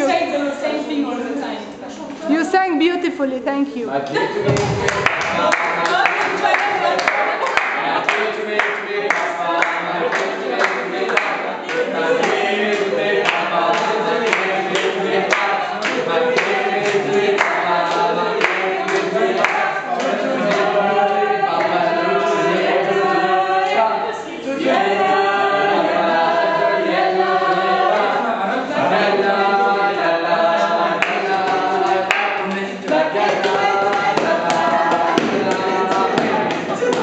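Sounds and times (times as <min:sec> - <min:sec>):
group singing unaccompanied: 0:00.0 - 0:02.5, 0:04.1 - 0:37.0
hand claps: 0:04.0 - 0:20.7, 0:31.0 - 0:37.0.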